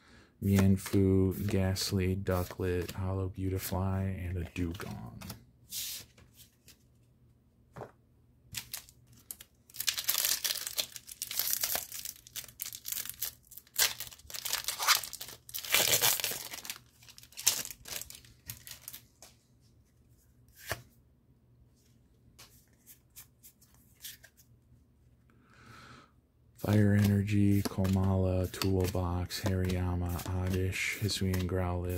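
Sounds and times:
cards clicking: 0.5 - 1.6, 26.6 - 31.6
foil wrapper tearing and crinkling: 8.6 - 19.0.

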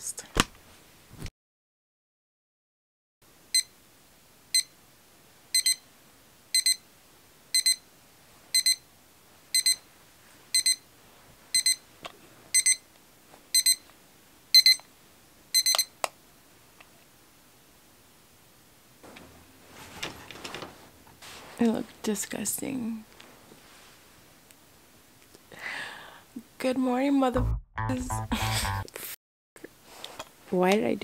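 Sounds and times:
electronic alarm beeping: 5.6 - 5.8, 6.6 - 6.8, 7.6 - 7.8, 8.6 - 8.8, 9.6 - 9.8, 10.6 - 10.8, 11.6 - 11.8, 12.6 - 12.8, 13.6 - 13.8, 14.6 - 14.8, 15.6 - 15.9.

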